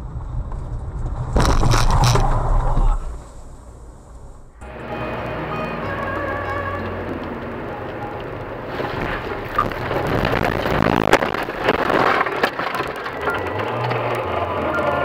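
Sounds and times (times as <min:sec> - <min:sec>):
car running on snowy road: 0:00.0 - 0:15.0
cracks and knocks: 0:00.5 - 0:03.0, 0:08.7 - 0:14.0
snow rushing and scraping: 0:08.6 - 0:15.0.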